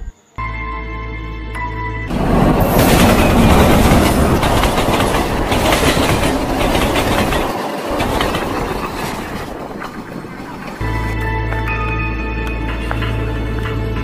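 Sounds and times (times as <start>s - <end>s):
train wheels clattering: 2.1s - 11.1s.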